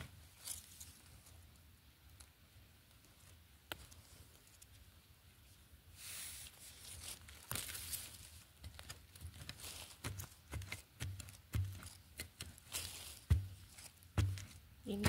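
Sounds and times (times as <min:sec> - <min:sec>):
leaf litter rustling: 0:06.0 - 0:15.0.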